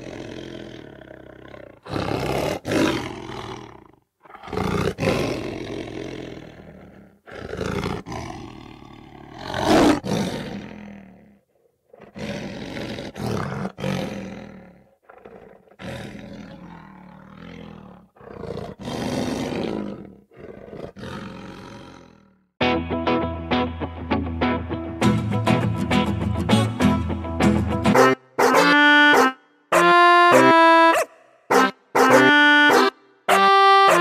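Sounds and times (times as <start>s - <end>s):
big cat roars and growls: 0.0s - 22.5s.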